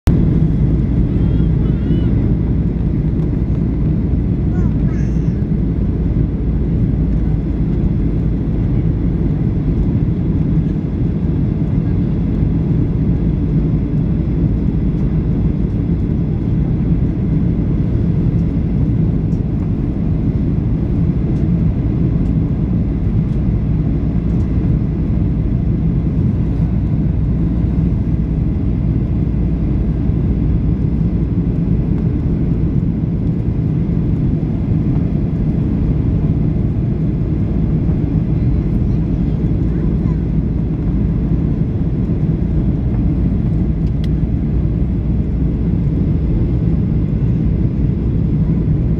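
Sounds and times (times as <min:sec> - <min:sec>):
airflow over fuselage: 0:00.1 - 0:48.9
airplane cabin engine drone: 0:00.1 - 0:48.9.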